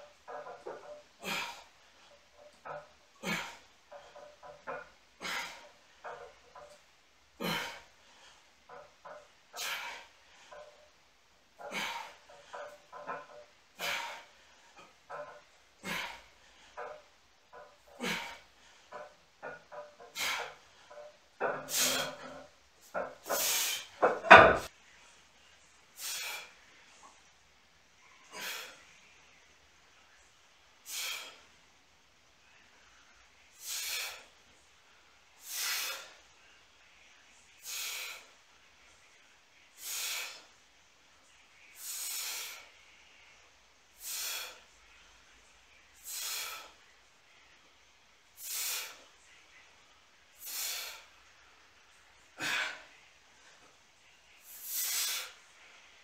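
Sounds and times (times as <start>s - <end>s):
man breathing sharply with exertion: 0.4s - 6.7s, 7.4s - 10.8s, 11.6s - 17.0s, 17.8s - 24.7s, 26.0s - 26.6s, 28.3s - 28.9s, 30.8s - 31.6s, 33.5s - 34.4s, 35.4s - 36.3s, 37.6s - 38.4s, 39.8s - 40.5s, 41.8s - 42.8s, 44.0s - 44.7s, 46.0s - 46.8s, 48.4s - 49.1s, 50.4s - 51.3s, 52.4s - 53.0s, 54.4s - 55.5s.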